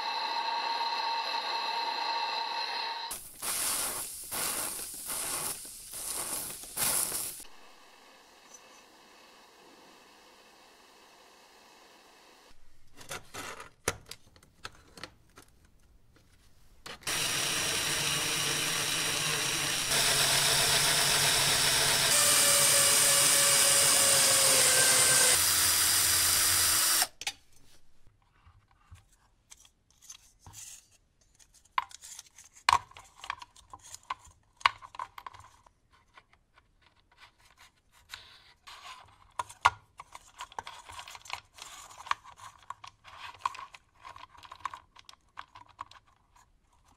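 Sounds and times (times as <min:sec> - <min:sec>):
electric drill whining: 0:00.0 - 0:03.2, 0:17.0 - 0:27.2.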